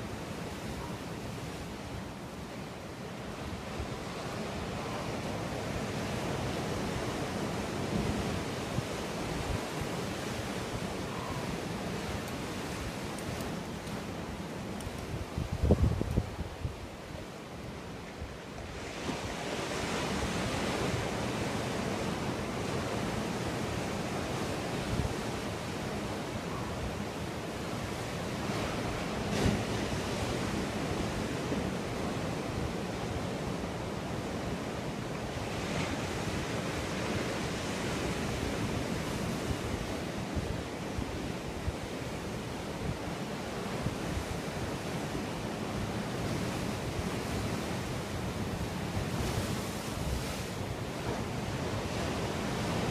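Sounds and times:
ocean surf washing: 0.0s - 52.9s
wind buffeting microphone: 14.9s - 17.0s.

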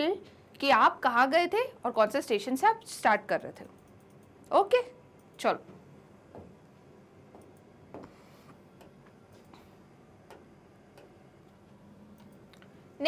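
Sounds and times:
stylus tapping on screen: 7.3s - 9.5s, 10.2s - 11.2s.

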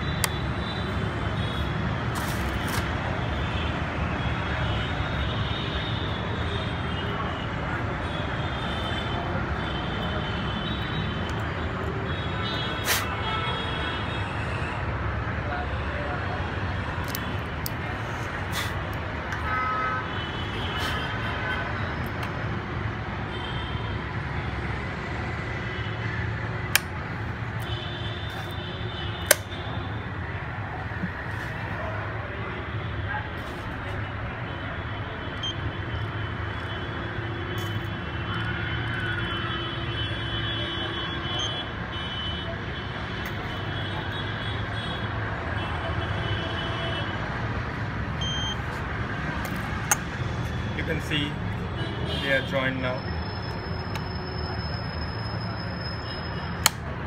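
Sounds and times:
outdoor traffic hum: 0.0s - 57.0s
sharp clicks of clamps snapping shut: 29.2s - 29.5s.

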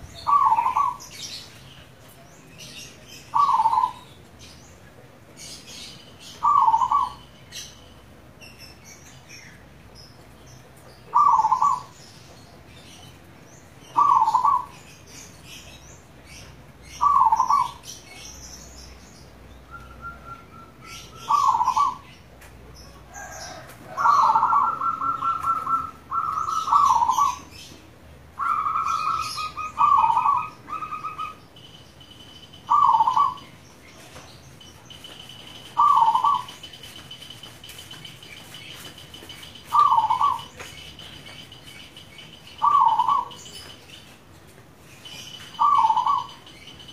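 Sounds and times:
dove cooing: 0.0s - 1.2s, 3.3s - 4.0s, 6.4s - 7.2s, 11.1s - 12.0s, 13.9s - 14.8s, 17.0s - 17.8s, 20.0s - 22.1s, 23.1s - 27.5s, 28.4s - 31.4s, 32.7s - 33.4s, 35.6s - 36.6s, 39.7s - 40.7s, 42.6s - 43.4s, 45.6s - 46.4s
pulsed trilling bird calls: 0.0s - 1.4s, 3.3s - 4.1s, 6.4s - 7.8s, 11.1s - 12.0s, 13.9s - 14.8s, 17.0s - 18.2s, 20.0s - 22.1s, 24.0s - 27.5s, 28.4s - 33.7s, 34.7s - 37.4s, 38.0s - 43.7s, 45.2s - 46.9s.

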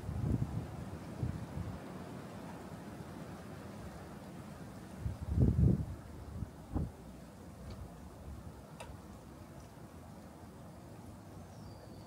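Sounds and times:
even outdoor hiss: 0.0s - 12.0s.

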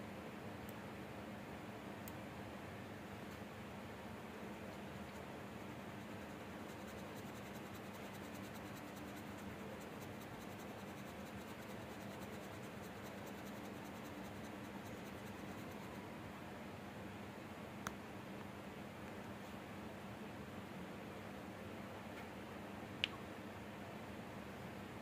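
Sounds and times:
faint hiss and hum: 0.0s - 25.0s
pencil scratching on paper: 5.1s - 16.0s.

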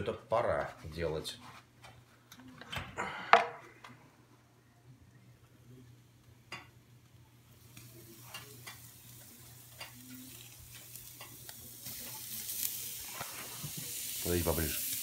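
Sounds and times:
meat sizzling: 7.4s - 15.0s.

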